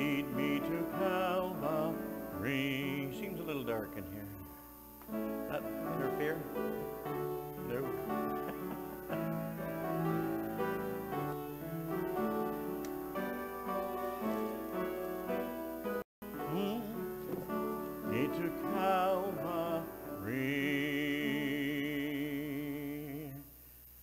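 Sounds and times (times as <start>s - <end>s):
person singing with vibrato: 0.0s - 4.4s, 16.3s - 23.6s
hymn with keyboard accompaniment: 0.0s - 12.9s, 16.2s - 23.6s.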